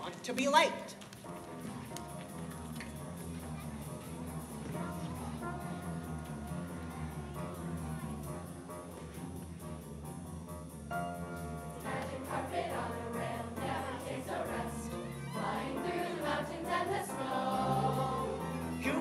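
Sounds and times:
pit orchestra playing: 1.3 - 19.0
children's choir singing: 11.7 - 19.0.

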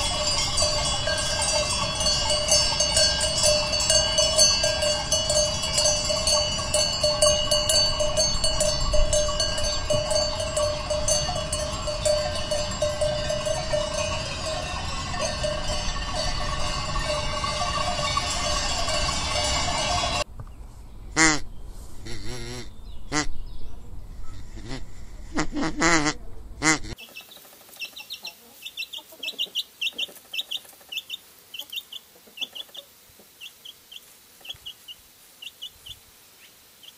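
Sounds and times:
bells clanking and ringing: 0.0 - 20.3
goose honking: 21.2 - 23.3, 24.5 - 27.0.

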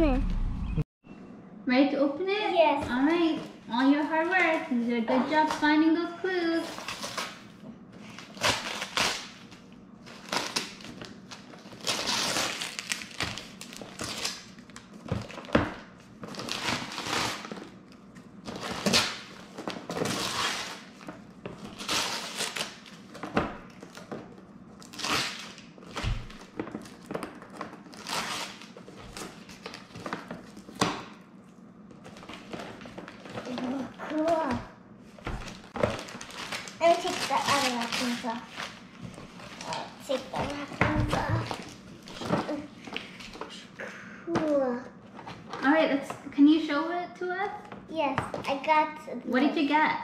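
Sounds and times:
wrapping paper tearing and crumpling: 6.5 - 30.8, 32.0 - 34.5, 35.2 - 43.7.

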